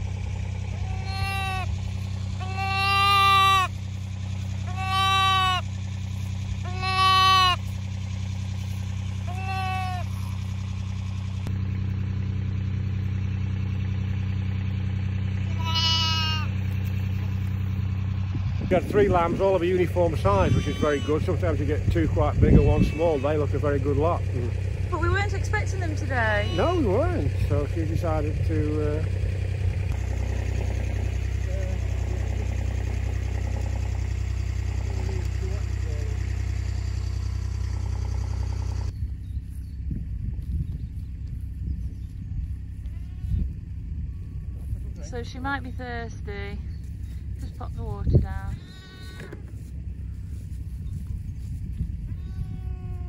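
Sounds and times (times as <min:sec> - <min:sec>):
steady low hum: 0:00.0 - 0:53.0
vehicle engine idling: 0:00.0 - 0:53.0
lambs bleating: 0:00.7 - 0:01.7, 0:02.4 - 0:03.7, 0:04.6 - 0:05.6, 0:06.6 - 0:07.7, 0:08.6 - 0:10.3, 0:15.5 - 0:16.6, 0:20.1 - 0:21.5, 0:22.5 - 0:23.6, 0:26.1 - 0:27.0, 0:42.8 - 0:43.5, 0:48.5 - 0:49.4, 0:52.0 - 0:53.0.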